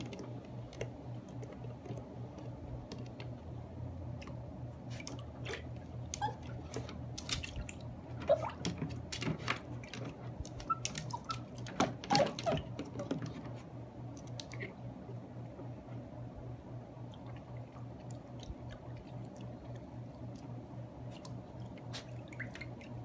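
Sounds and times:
low steady hum: 0.0 - 23.0
water splashing in plastic pool: 4.0 - 15.3, 16.8 - 23.0.

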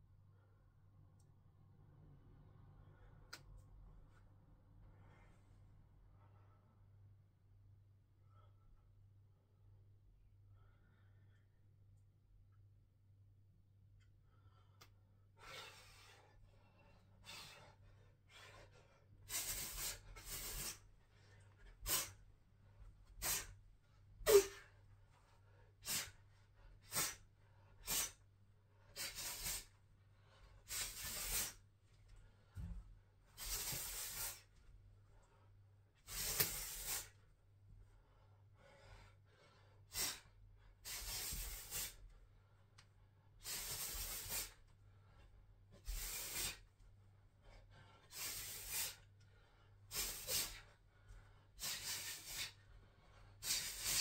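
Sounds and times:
forceful hissing exhalations: 19.3 - 20.8, 28.9 - 29.7, 30.7 - 31.6, 33.4 - 34.4, 36.0 - 37.1, 39.9 - 40.2, 40.8 - 42.0, 43.4 - 44.6, 45.8 - 46.6, 48.1 - 49.0, 49.9 - 50.7, 51.6 - 52.6, 53.4 - 54.0.

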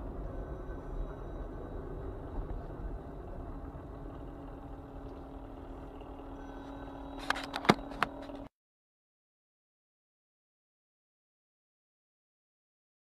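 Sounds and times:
car engine and road noise: 0.0 - 8.5
low hum: 0.0 - 8.5.

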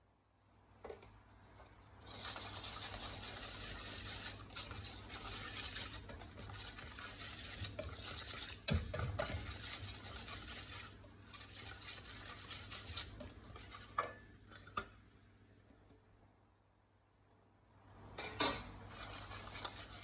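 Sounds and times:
whisk stirring batter: 2.0 - 14.9, 18.9 - 20.0
whisk knocking against metal bowl: 5.7 - 10.8.

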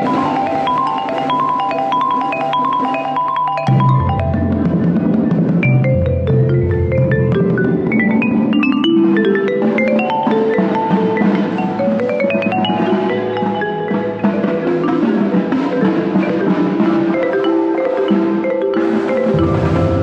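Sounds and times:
marimba fast passages: 0.0 - 20.0
percussion ensemble: 0.0 - 20.0.

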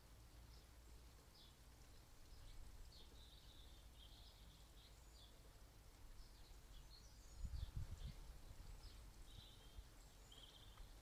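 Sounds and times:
bird chirps and calls: 0.5 - 5.4, 6.1 - 11.0
wind rumble on microphone: 7.0 - 10.0.

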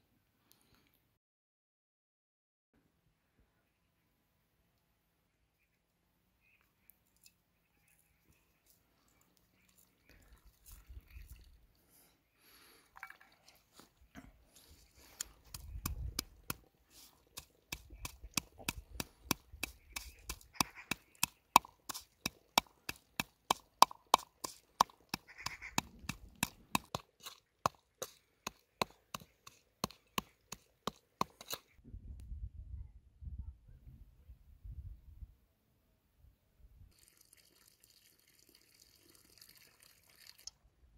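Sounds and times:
stone pounding in metal bowl: 17.3 - 31.6.

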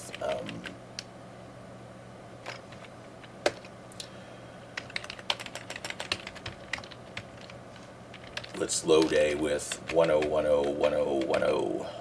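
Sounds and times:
keyboard typing: 4.8 - 11.7.

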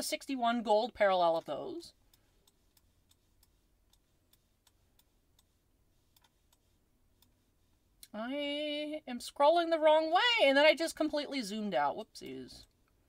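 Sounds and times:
mouse scroll wheel clicking: 2.1 - 7.3.

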